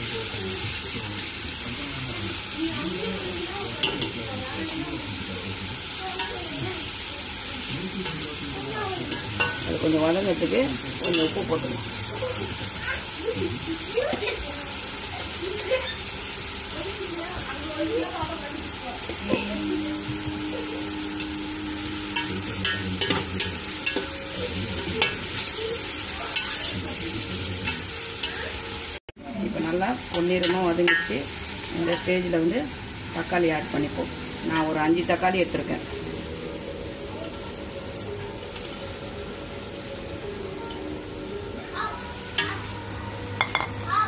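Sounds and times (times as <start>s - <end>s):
onions sizzling in hot oil: 0.0s - 44.0s.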